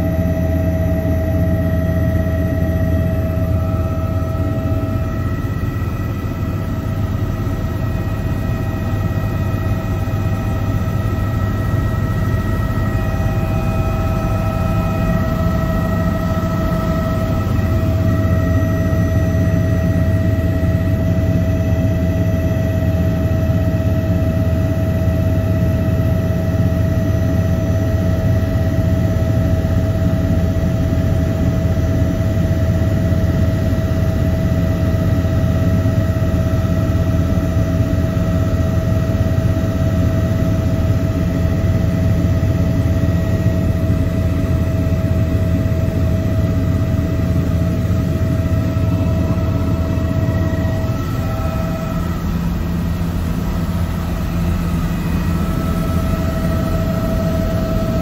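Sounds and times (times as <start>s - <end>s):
helicopter rotor and engine drone: 0.0s - 58.0s
high turbine whine: 0.0s - 58.0s.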